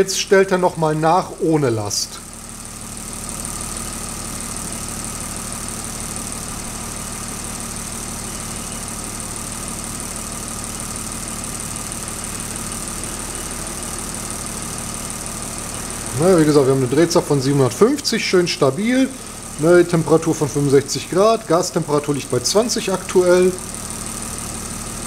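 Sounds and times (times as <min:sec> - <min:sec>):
car engine idling: 0:00.0 - 0:25.0
gas injectors clicking: 0:14.6 - 0:23.7.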